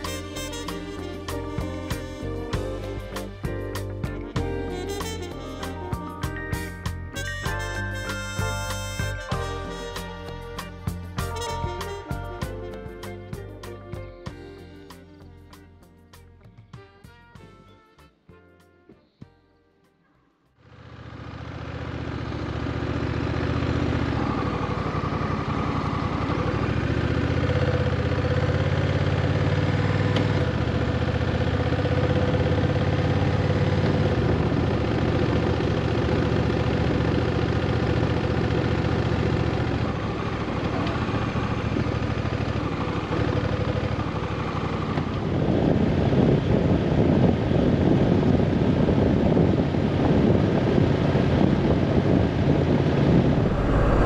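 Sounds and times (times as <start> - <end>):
motorcycle engine running: 20.6 - 46.2
loud rushing noise: 53.1 - 54.0.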